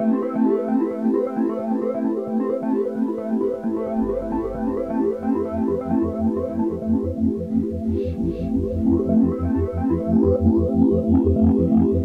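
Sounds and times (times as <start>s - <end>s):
synthesizer keyboard melody: 1.9s - 12.0s
low bass: 3.5s - 12.0s.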